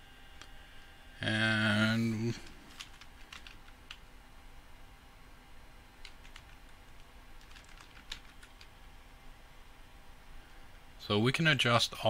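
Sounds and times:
faint keyboard keystrokes: 2.4s - 4.0s, 6.0s - 8.7s.

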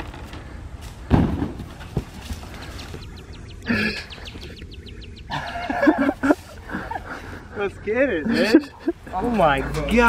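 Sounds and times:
bird chirping rapidly: 2.9s - 5.8s.

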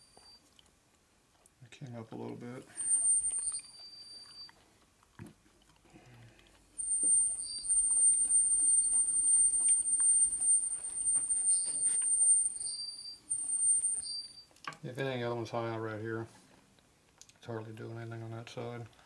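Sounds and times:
high-pitched flywheel squeal: 2.7s - 4.4s, 6.8s - 14.5s.

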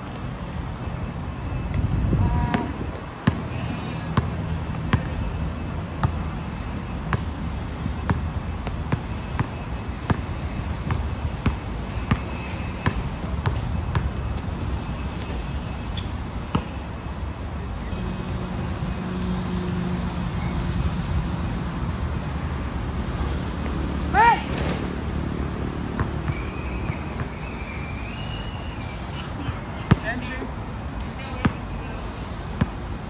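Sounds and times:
basketball bouncing on hard court: 2.5s - 3.4s, 8.1s - 15.4s.

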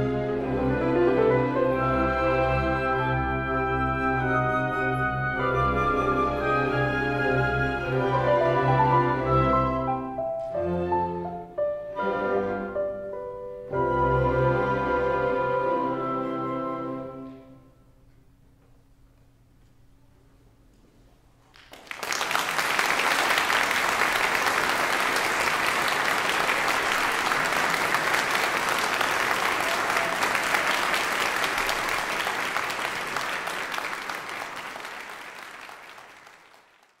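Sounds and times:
audience applause: 21.5s - 37.0s.

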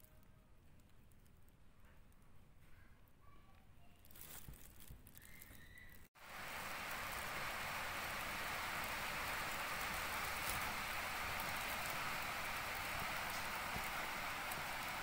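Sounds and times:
steady hiss: 6.2s - 15.0s.

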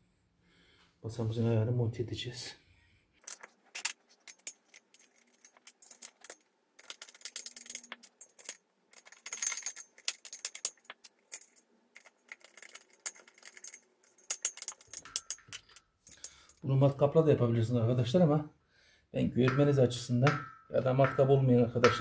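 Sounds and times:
bolts clinking on metal plate: 3.2s - 16.6s.

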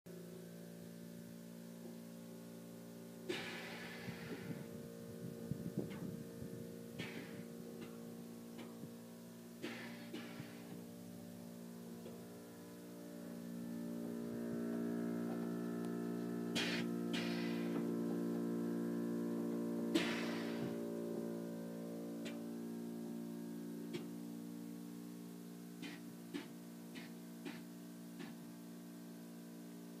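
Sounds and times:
sustained chord: 0.1s - 27.0s
steady low hum: 0.1s - 30.0s
air hissing from valves: 3.3s - 6.3s, 6.9s - 11.1s, 16.5s - 17.9s, 19.9s - 21.0s, 25.8s - 28.4s.

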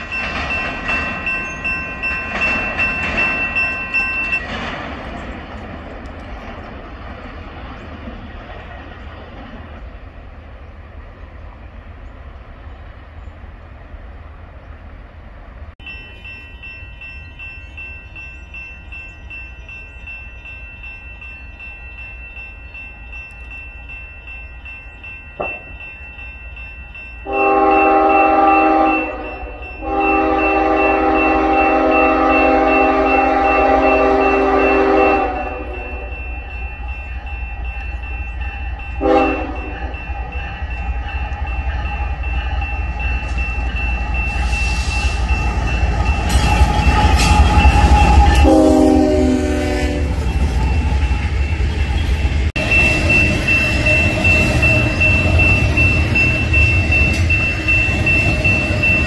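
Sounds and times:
wheels clicking over rails: 0.0s - 9.8s
train rumble: 0.0s - 59.0s
locomotive air horn: 27.2s - 36.1s, 39.0s - 39.9s, 46.6s - 50.2s.

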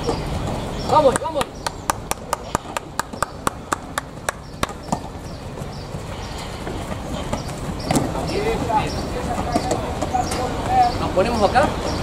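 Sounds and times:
faint steady background noise: 0.0s - 12.0s
rhythmic hand clapping: 1.0s - 5.1s.

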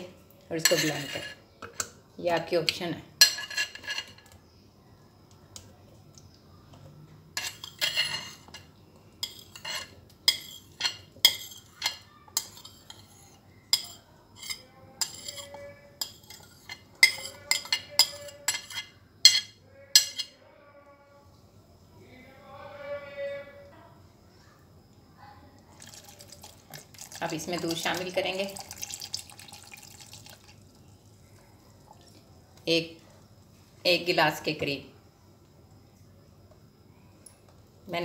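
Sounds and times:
glass bowl and dishes clinking: 0.6s - 1.9s, 7.4s - 20.3s.

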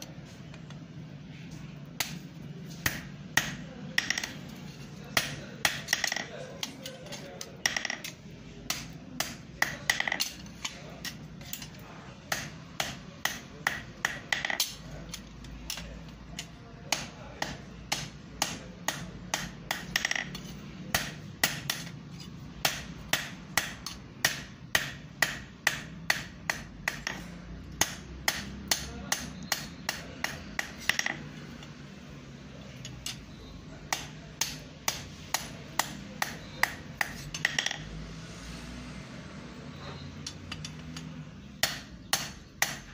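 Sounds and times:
hammer striking iron on an anvil: 2.8s - 4.3s, 8.7s - 10.4s, 12.3s - 14.8s, 16.9s - 21.9s, 22.6s - 27.2s, 27.8s - 31.1s, 33.9s - 37.8s, 41.6s - 42.9s.

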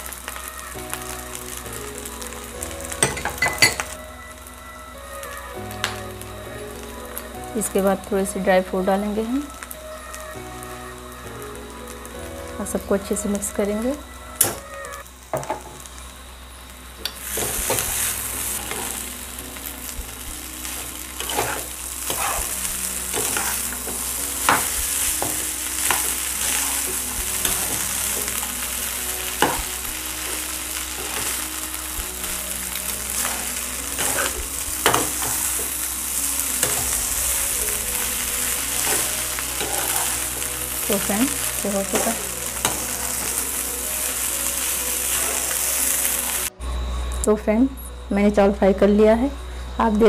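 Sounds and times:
rice sizzling in a pan: 0.0s - 46.6s
metal spatula scraping a pan: 20.6s - 28.5s, 33.1s - 35.8s, 38.7s - 43.4s.

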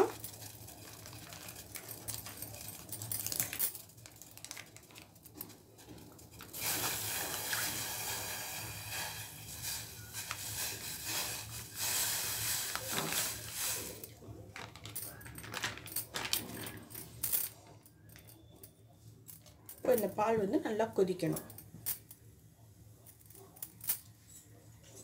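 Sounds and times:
tea bubbling in a saucepan: 0.0s - 3.0s, 5.7s - 14.0s
milk pouring into a pan: 6.6s - 13.9s.

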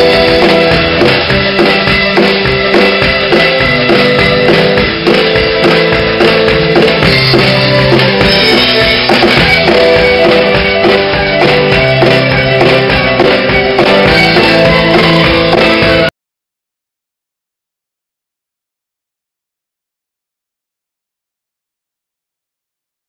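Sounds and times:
drum kit beat: 0.0s - 16.1s
fiddle lead: 0.0s - 16.1s
keyboard and guitar backing: 0.0s - 16.1s.

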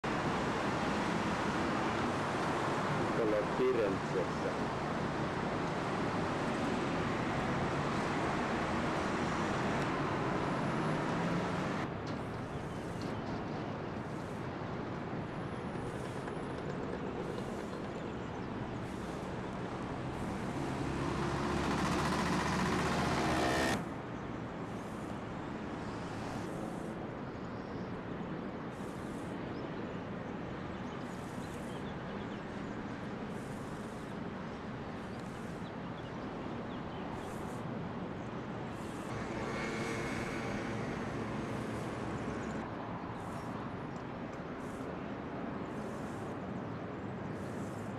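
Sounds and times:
distant road traffic hum: 0.0s - 47.9s
vehicle engine revving: 9.0s - 11.9s, 19.9s - 23.9s.

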